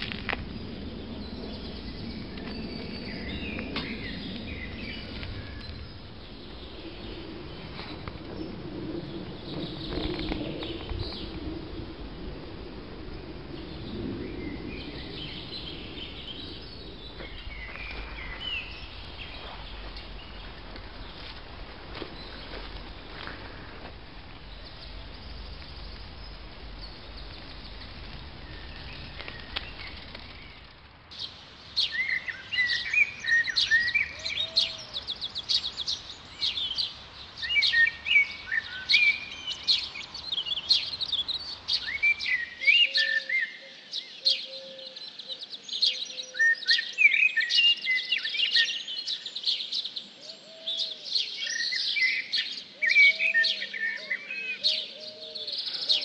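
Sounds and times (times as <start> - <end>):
bicycle riding rushing noise: 0.0 - 42.1
birds chirping and trilling: 0.0 - 56.0
low soft bird calls: 0.0 - 56.0.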